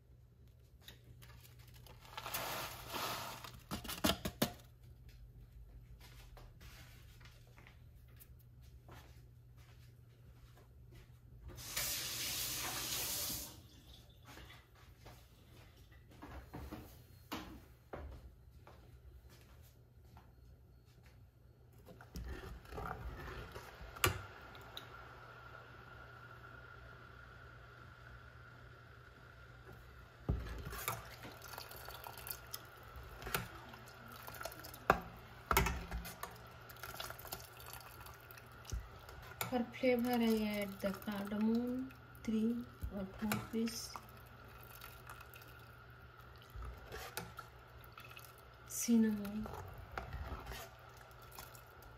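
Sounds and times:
quiet kitchen hum: 0.0s - 51.9s
water running from a tap: 11.6s - 13.6s, 31.0s - 32.8s, 36.7s - 41.9s
milk sloshing in a pot: 21.8s - 24.2s, 30.3s - 51.9s.

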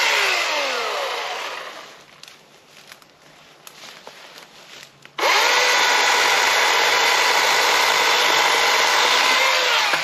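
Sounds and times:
chainsaw whining cutting branch: 0.0s - 2.0s, 5.2s - 10.0s.

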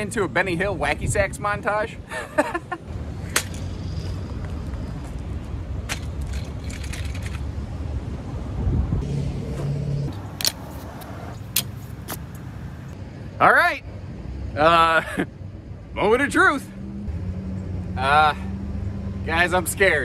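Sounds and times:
carabiner hook clipping: 10.1s - 12.5s.

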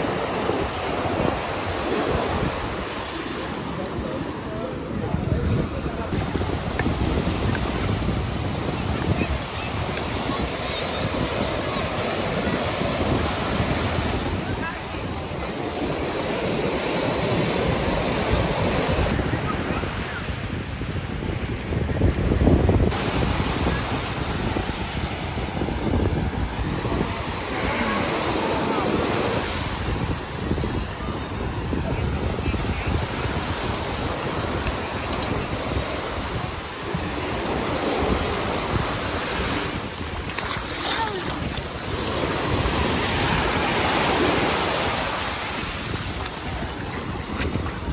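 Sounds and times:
surf breaking on beach: 0.0s - 47.9s
wind buffeting microphone: 0.0s - 47.9s.

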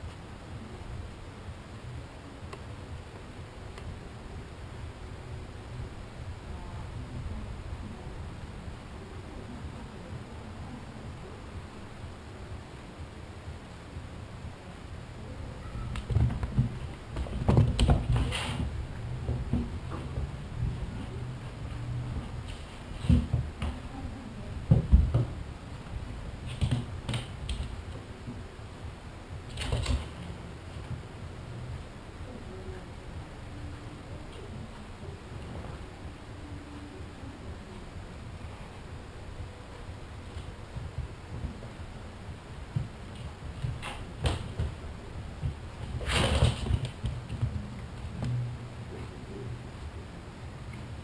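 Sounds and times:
cats scuffling on wooden floor: 15.9s - 23.9s, 45.4s - 48.4s.

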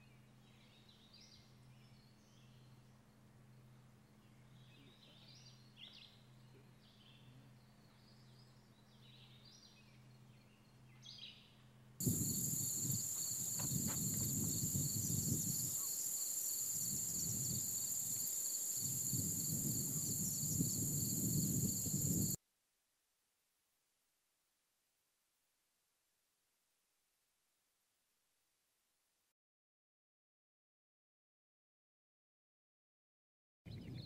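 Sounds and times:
high-pitched insect chorus: 12.0s - 22.4s
wind rumbling on microphone: 12.0s - 22.4s, 33.7s - 34.0s
faint bird calls: 12.1s - 18.7s.

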